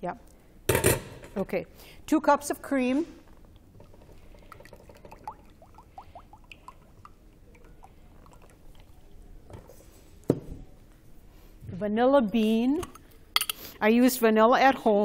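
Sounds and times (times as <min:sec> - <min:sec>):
cream glugging into a saucepan: 0:03.3 - 0:09.8.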